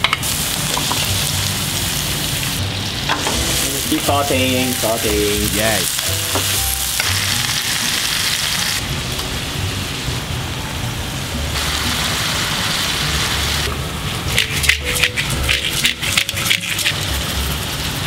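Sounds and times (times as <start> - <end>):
vegetables sizzling in oil: 0.2 - 10.4, 11.5 - 14.6.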